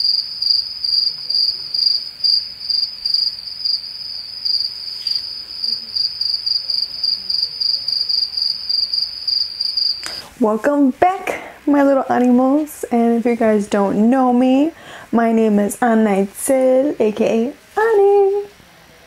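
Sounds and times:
crickets chirping: 0:00.0 - 0:10.3.

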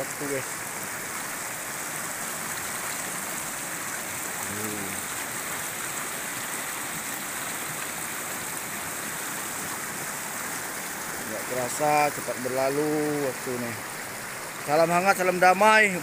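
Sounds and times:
river rushing over rocks: 0:00.0 - 0:16.0.

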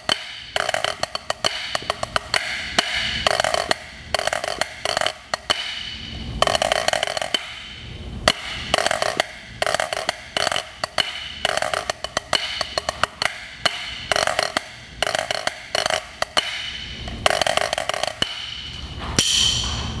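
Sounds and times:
drumsticks on a practice pad: 0:00.0 - 0:20.0.

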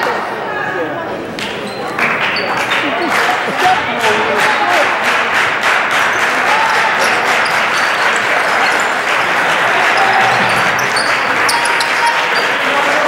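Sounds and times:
spectators applauding and cheering: 0:00.0 - 0:13.0
sneakers squeaking on court: 0:01.3 - 0:03.1, 0:07.0 - 0:09.1, 0:09.8 - 0:12.6.

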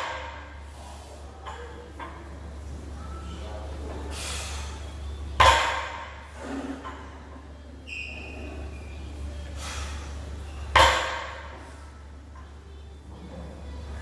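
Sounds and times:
barbell thudding on gym floor: 0:05.4 - 0:06.1.

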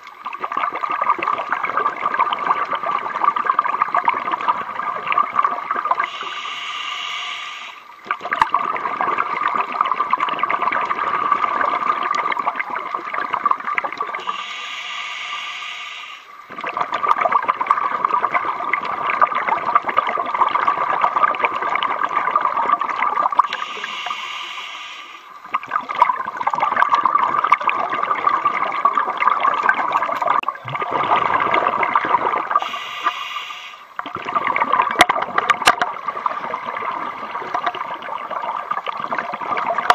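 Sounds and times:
bubbling exhale: 0:06.0 - 0:07.8, 0:14.2 - 0:16.8, 0:23.4 - 0:25.7, 0:30.6 - 0:34.6
regulator hissing inhales: 0:06.1 - 0:07.8, 0:14.2 - 0:16.3, 0:23.5 - 0:25.3, 0:32.6 - 0:33.9.

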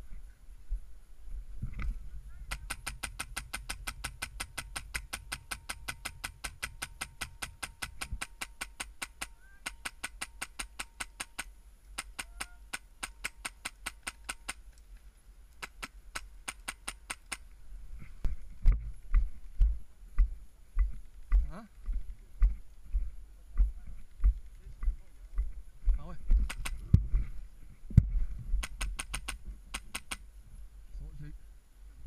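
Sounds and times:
airsoft rifle shots: 0:02.5 - 0:14.6, 0:15.6 - 0:17.5, 0:26.4 - 0:26.9, 0:28.6 - 0:30.2.

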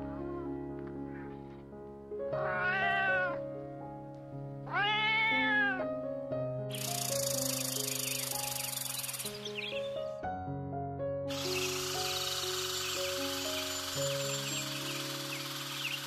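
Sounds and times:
background music: 0:00.0 - 0:16.0
cat meowing: 0:02.4 - 0:03.4, 0:04.6 - 0:05.9
loud high hiss: 0:11.3 - 0:16.0.

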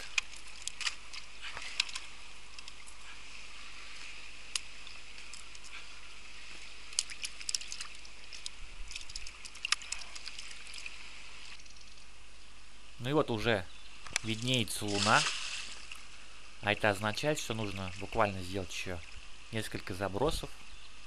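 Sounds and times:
net and bucket clicks and rattles: 0:00.0 - 0:03.0, 0:06.9 - 0:10.9
steady high hiss: 0:00.0 - 0:09.0, 0:09.6 - 0:21.0.

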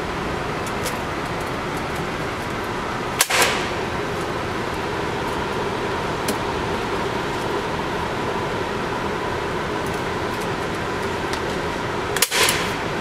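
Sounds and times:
ventilation noise: 0:00.0 - 0:13.0
gunshot crack: 0:03.2 - 0:03.8, 0:12.2 - 0:12.7.

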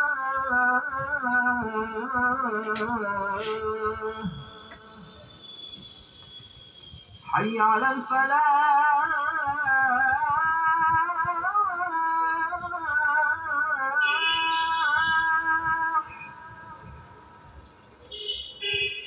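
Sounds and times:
man chanting call to prayer: 0:00.0 - 0:05.2, 0:07.3 - 0:16.1.

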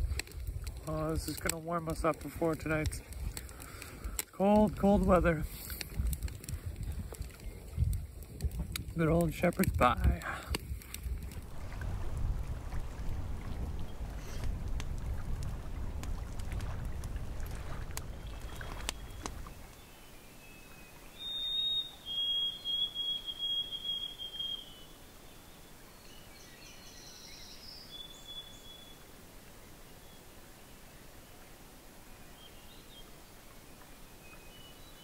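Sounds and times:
wind rumbling on microphone: 0:00.0 - 0:19.8
bird whistling: 0:20.4 - 0:25.0, 0:27.1 - 0:29.0.

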